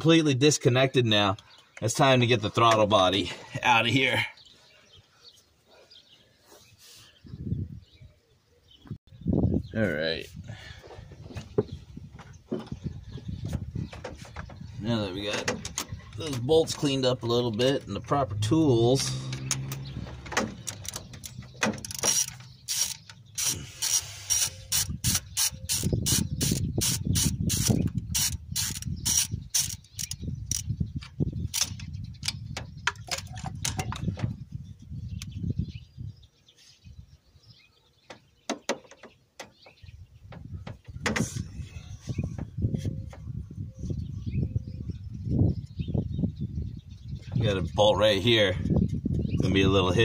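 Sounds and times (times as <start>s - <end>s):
socket ratchet clicking: 20.6s - 30.7s.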